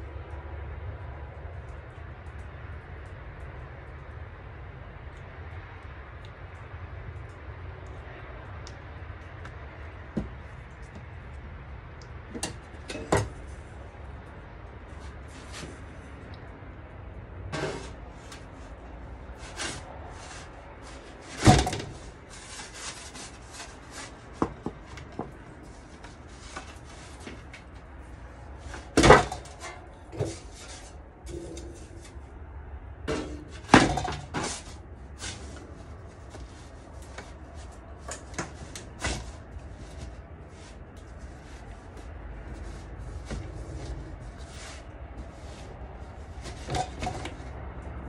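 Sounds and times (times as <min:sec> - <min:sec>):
metal pizza peel scraping metal: 0:17.5 - 0:18.7, 0:19.4 - 0:24.5, 0:28.6 - 0:32.2, 0:42.6 - 0:47.4.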